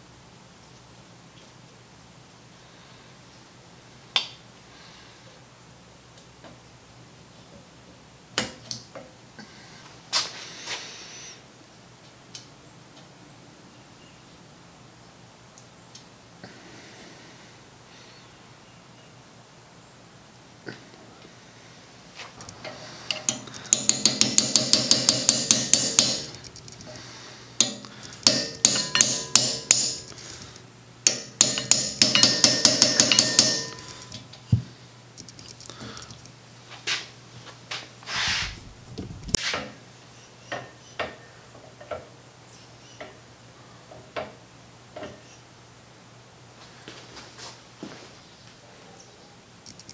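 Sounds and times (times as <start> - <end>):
ratchet wrench clicking: 23.1 - 26.8, 27.6 - 30.2, 31.1 - 34.1.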